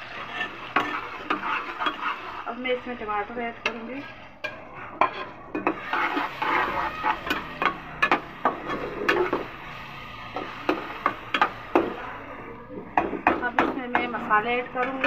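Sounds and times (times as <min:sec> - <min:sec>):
spoon scraping plate: 0:00.0 - 0:02.5, 0:03.6 - 0:09.7
soft sizzle: 0:00.0 - 0:15.0.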